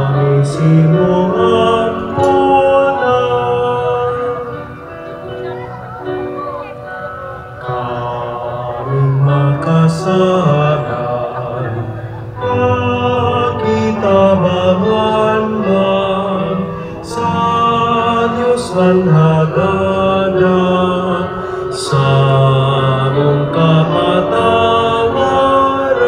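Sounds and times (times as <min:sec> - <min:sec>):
slow song with held sung notes: 0:00.0 - 0:26.0.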